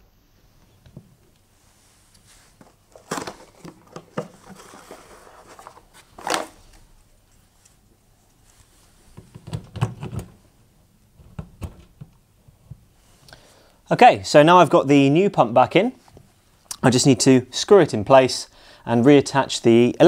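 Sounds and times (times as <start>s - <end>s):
cardboard rustling: 2.4s - 6.9s.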